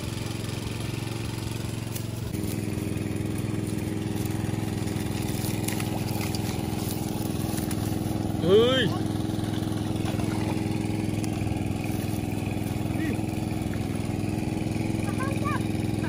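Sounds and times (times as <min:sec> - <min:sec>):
water pump engine running: 0:00.0 - 0:16.0.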